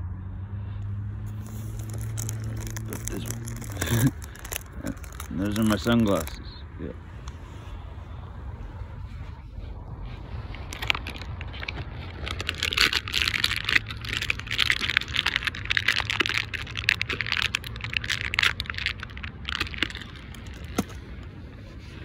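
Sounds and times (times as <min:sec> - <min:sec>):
plastic bag rustling and crinkling: 0:01.3 - 0:06.4, 0:10.2 - 0:21.3.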